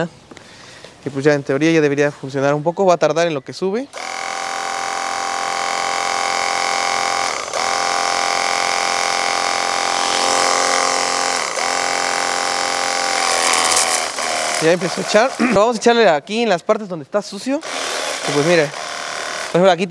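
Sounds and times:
electric pump motor whining: 4.0 - 15.6, 17.6 - 19.6.

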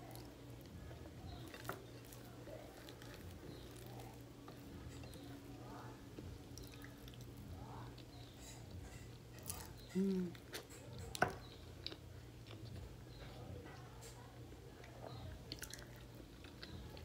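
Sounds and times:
wet squishy eating by hand: 0.0 - 5.5, 14.8 - 17.0
soft chewing: 0.0 - 17.0.

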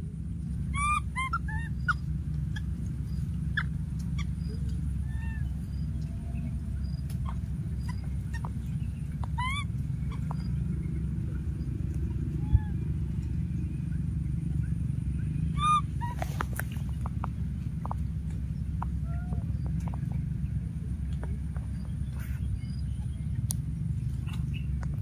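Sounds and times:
steady low rumble: 0.0 - 25.0
baby monkey squealing: 0.6 - 5.9, 7.1 - 10.6, 12.4 - 12.8, 15.4 - 16.6.

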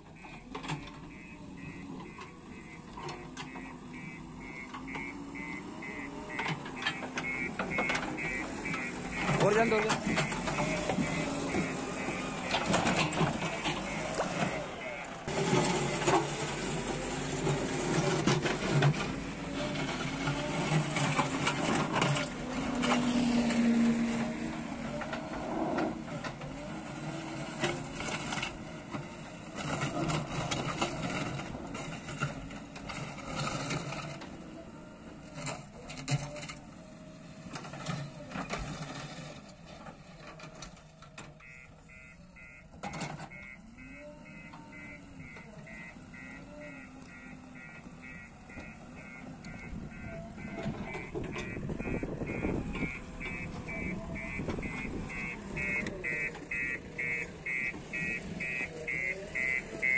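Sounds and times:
diesel engine revving: 0.0 - 59.9
rapid repeating beeping: 0.2 - 15.1, 41.4 - 42.7, 43.3 - 59.9.

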